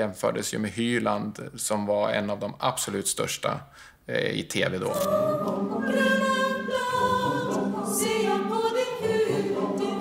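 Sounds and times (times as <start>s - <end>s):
choir singing long notes: 4.9s - 10.0s.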